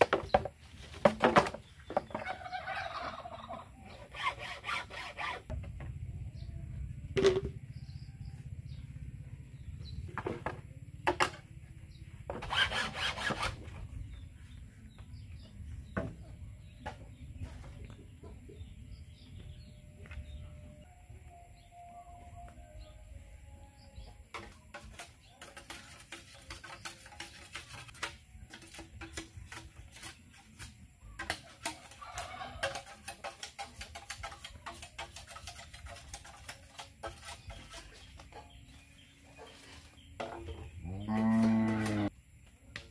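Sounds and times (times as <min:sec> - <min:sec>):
bamboo rasping: 0:03.9 - 0:05.6, 0:12.3 - 0:13.8, 0:24.4 - 0:40.6.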